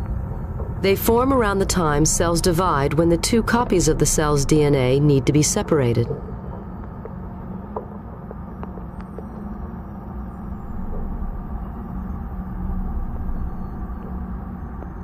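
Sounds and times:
low ambient drone: 0.0 - 15.0.

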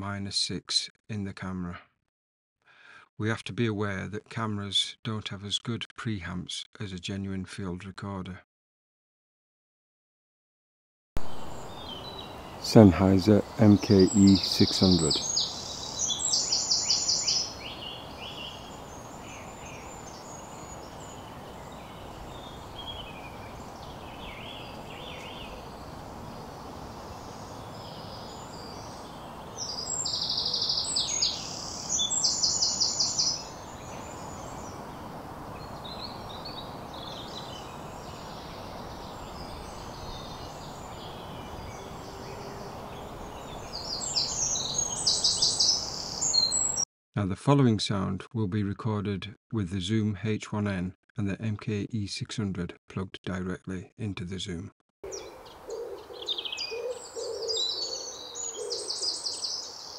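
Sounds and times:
steady background hiss: 11.2 - 44.1
small birds calling faintly: 11.2 - 46.8, 55.1 - 59.9
songbird singing high notes: 11.3 - 25.8, 27.2 - 34.8.

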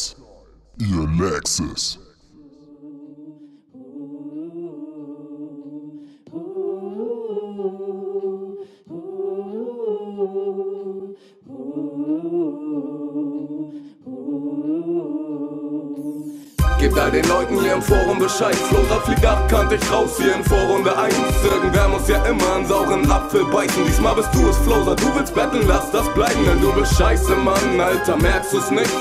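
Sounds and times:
person humming a cappella: 9.1 - 29.0.

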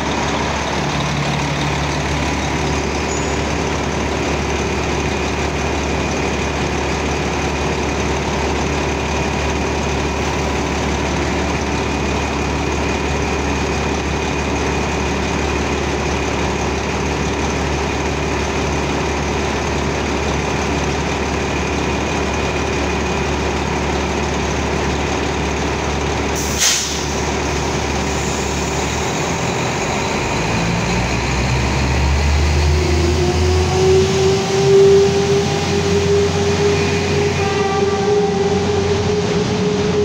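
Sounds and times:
train machinery droning: 0.0 - 40.0
train whine pulling away: 0.0 - 40.0
sharp hiss of air: 26.4 - 27.3.

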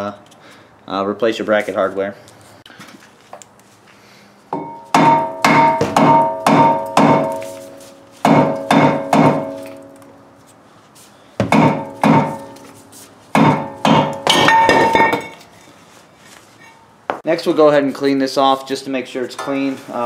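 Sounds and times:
hammer striking ringing brake rotor: 4.5 - 10.1, 11.4 - 12.8, 13.4 - 15.4.

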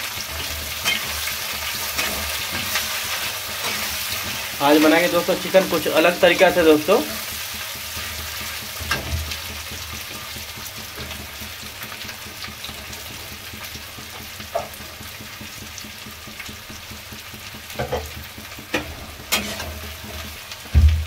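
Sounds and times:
steel spatula scraping pan: 0.0 - 10.4, 18.7 - 20.4
onions sizzling in hot oil: 0.0 - 21.0.

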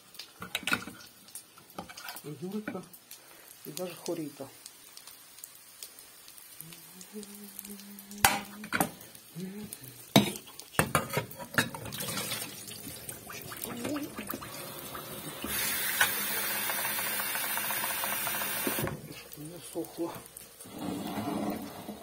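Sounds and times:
tap water running into a bowl: 10.1 - 19.1
metal spoon scraping a frying pan: 10.2 - 11.9.

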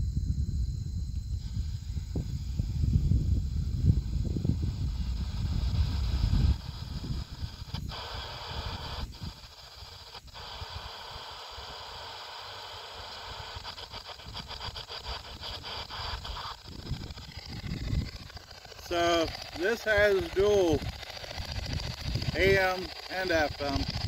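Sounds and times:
rapid even stutter: 3.8 - 24.0
radio static hiss: 4.6 - 24.0
low rumble: 15.4 - 22.7.

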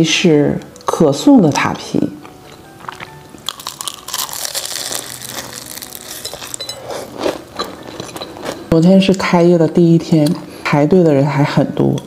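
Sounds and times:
soft chewing: 2.2 - 9.3
pastry crackling and crunching: 2.8 - 9.5.

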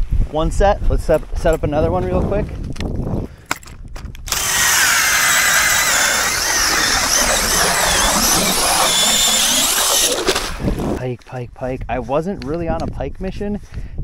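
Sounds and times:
auger blades grinding ice: 4.3 - 11.0
drill motor whine: 4.3 - 11.0.

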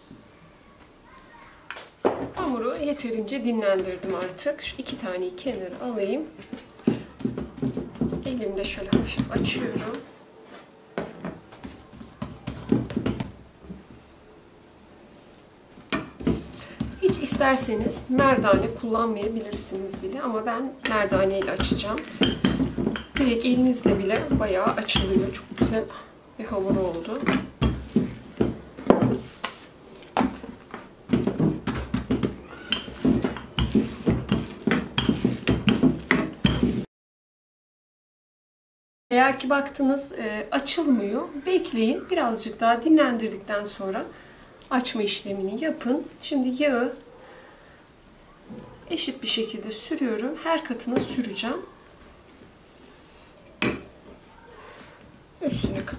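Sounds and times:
metal bowl knocking on wood: 20.8 - 25.9, 26.6 - 29.2, 31.1 - 36.8.

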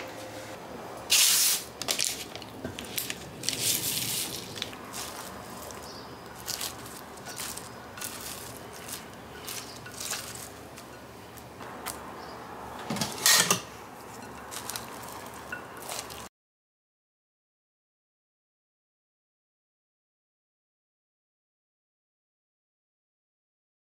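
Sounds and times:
chopsticks tossing crispy food in sauce: 2.8 - 11.5, 14.2 - 16.3.

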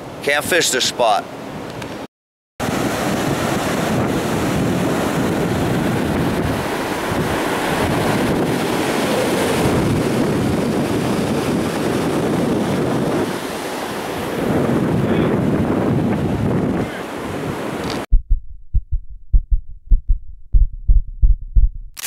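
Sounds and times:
ocean surf breaking: 2.6 - 18.1
wind buffeting microphone: 2.6 - 18.1.

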